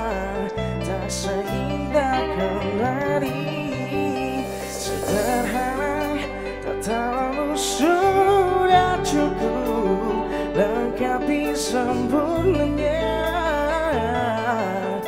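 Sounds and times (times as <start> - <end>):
bass guitar: 0.0 - 15.0
electric guitar: 0.0 - 15.0
man singing: 0.0 - 15.0
cymbal strokes: 3.8 - 6.7.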